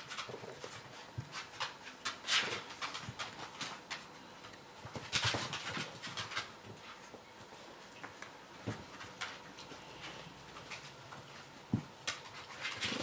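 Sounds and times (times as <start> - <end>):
dog claws scrabbling on tiles: 0.0 - 7.2, 7.9 - 13.0.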